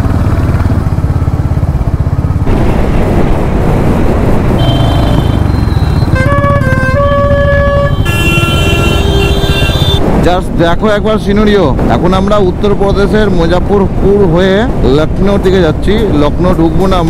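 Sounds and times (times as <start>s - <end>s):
motorcycle engine running: 0.0s - 10.2s
vehicle horns sounding: 4.6s - 10.0s.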